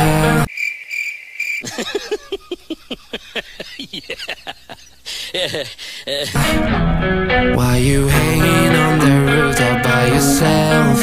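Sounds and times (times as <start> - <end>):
crickets chirping: 0.5 - 6.0
falling cackling cries: 1.6 - 6.4.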